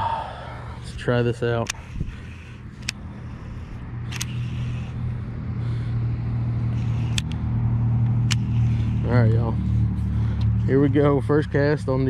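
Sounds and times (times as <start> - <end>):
vehicle engine hum: 0.0 - 12.0
sharp click: 2.8 - 3.0, 4.1 - 4.6, 6.7 - 7.4, 8.0 - 8.8.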